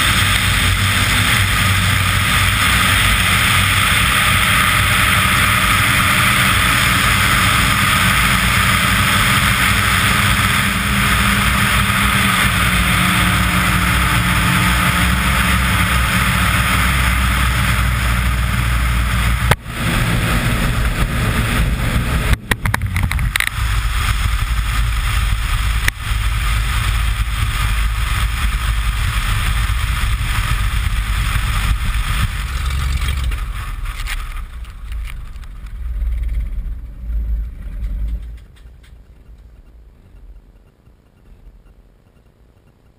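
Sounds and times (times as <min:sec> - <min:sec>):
airflow rush: 0:00.0 - 0:38.4
plane engine drone: 0:00.0 - 0:42.9
wheels touching down: 0:26.6 - 0:40.5.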